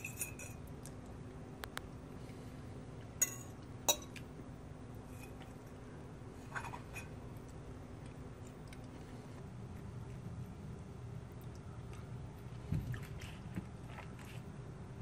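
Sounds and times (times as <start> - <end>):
steady low hum: 0.0 - 15.0
fork clinking on ceramic plate: 3.2 - 4.1.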